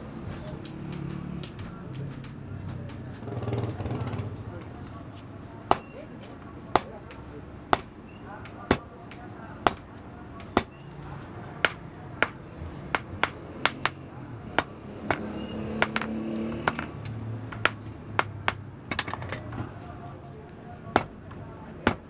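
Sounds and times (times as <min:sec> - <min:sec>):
hammer striking iron on anvil: 0:05.7 - 0:10.9, 0:11.6 - 0:19.4, 0:20.9 - 0:22.0.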